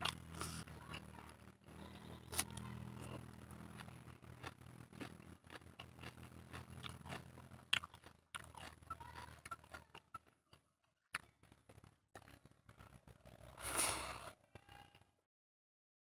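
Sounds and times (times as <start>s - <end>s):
chewing with mouth clicks: 0.0s - 12.4s.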